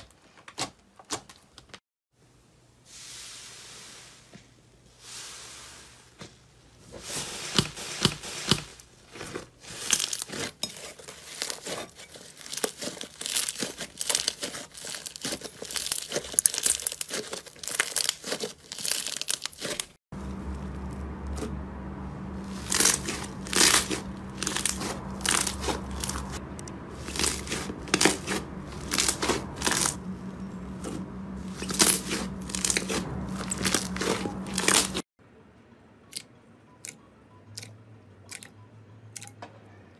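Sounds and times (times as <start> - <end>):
slime crackling and popping: 11.2 - 20.0, 22.5 - 26.4, 27.0 - 30.0
steady low hum: 20.2 - 35.8.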